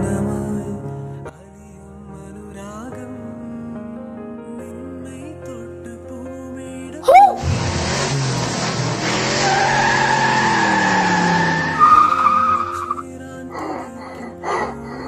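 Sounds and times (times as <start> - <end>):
soft background music: 0.0 - 7.4, 9.5 - 15.0
car tyres screeching: 7.1 - 13.0.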